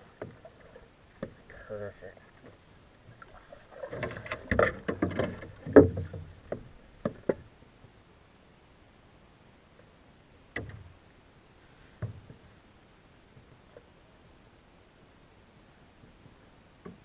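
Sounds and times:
wooden paddle knocking on canoe: 0.1s - 1.4s, 3.8s - 7.5s, 12.0s - 12.5s, 16.8s - 17.0s.

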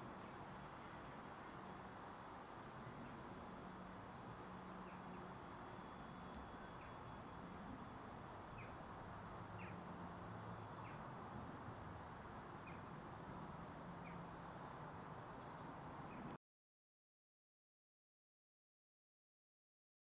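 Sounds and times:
distant diesel locomotive hum: 0.0s - 15.4s
bird chirps: 4.2s - 8.8s.

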